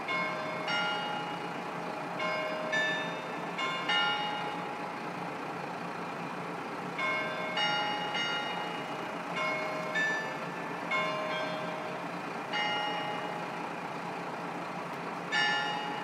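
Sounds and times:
bell-like chimes ringing: 0:00.0 - 0:05.0, 0:07.0 - 0:13.6, 0:15.3 - 0:16.0
diesel engine low hum: 0:00.0 - 0:16.0.

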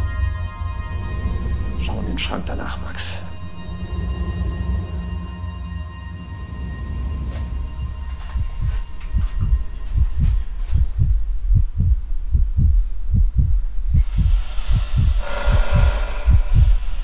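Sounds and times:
heartbeat thumps: 0:07.3 - 0:16.9.

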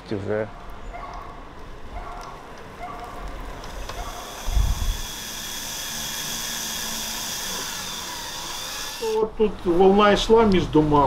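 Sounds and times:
cordless drill whirring: 0:03.6 - 0:09.2.

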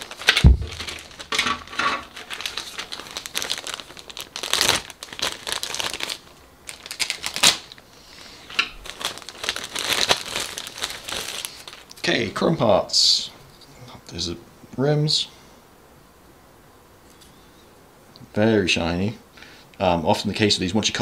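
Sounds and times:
plastic bags crinkling: 0:00.0 - 0:12.2.

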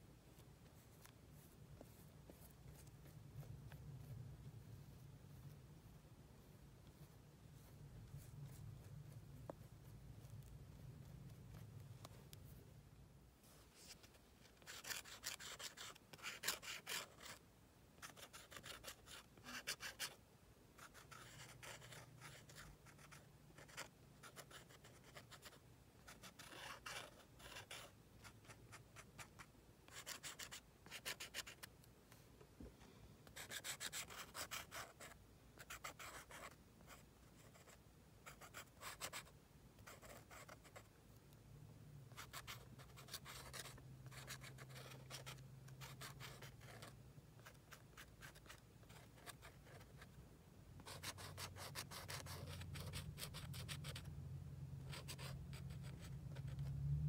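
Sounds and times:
pen scratching on paper: 0:13.8 - 0:17.4, 0:18.0 - 0:20.2, 0:20.8 - 0:31.7, 0:33.3 - 0:40.9, 0:42.1 - 0:50.1, 0:50.8 - 0:54.1, 0:54.8 - 0:56.6.

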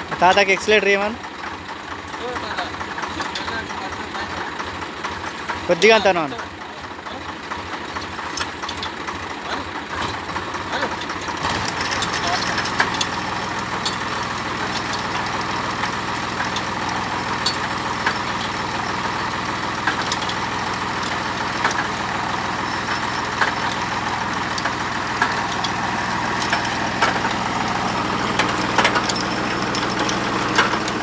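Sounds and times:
drilling rig engine running: 0:00.0 - 0:31.0
sharp metallic clicks: 0:19.7 - 0:31.0.

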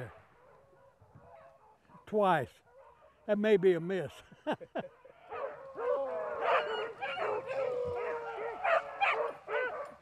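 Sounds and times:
dogs baying and howling: 0:00.0 - 0:02.0, 0:02.6 - 0:03.3, 0:04.8 - 0:10.0.

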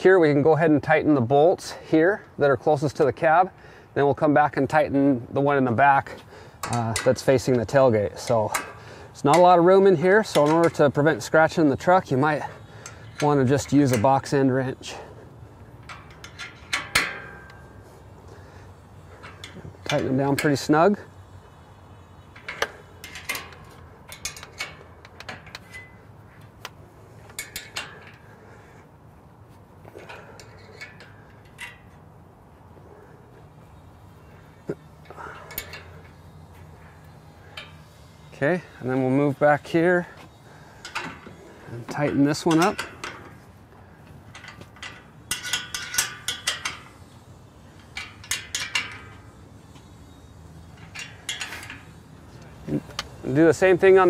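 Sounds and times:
wrench metal clicks: 0:10.2 - 0:11.3, 0:15.8 - 0:17.7, 0:22.3 - 0:28.3, 0:30.0 - 0:32.0, 0:44.3 - 0:50.0, 0:50.6 - 0:54.0.

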